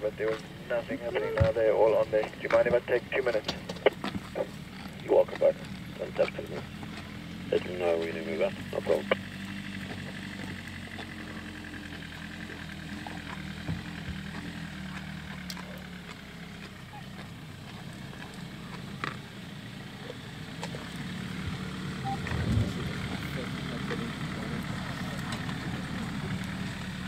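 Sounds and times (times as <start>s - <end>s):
vehicle engine idling: 0.0s - 27.0s
loud low rumble: 21.5s - 24.9s.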